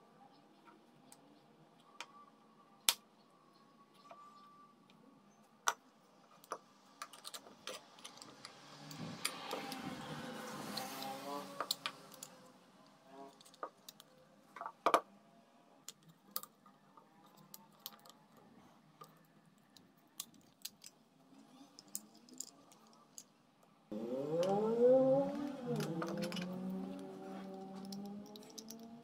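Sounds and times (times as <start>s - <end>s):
small objects clicking and tapping: 6.4s - 10.0s, 10.7s - 12.4s, 13.3s - 15.0s, 15.8s - 18.4s, 19.0s - 21.0s, 21.6s - 23.3s, 25.7s - 29.0s.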